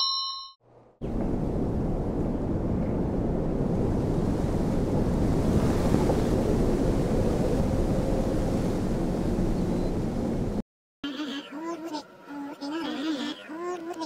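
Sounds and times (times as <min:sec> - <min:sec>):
rushing wind gust: 0:01.0 - 0:10.6.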